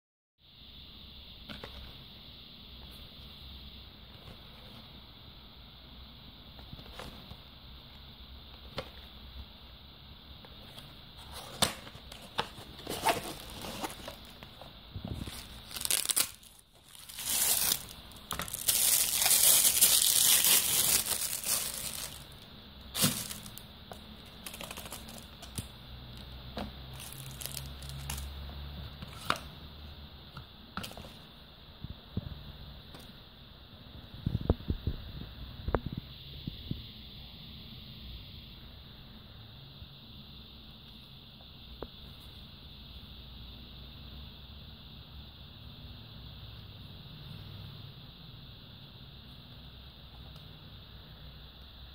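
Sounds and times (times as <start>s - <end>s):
plastic wrapping crinkling: 12.1s - 23.6s, 24.2s - 25.7s, 26.9s - 28.3s.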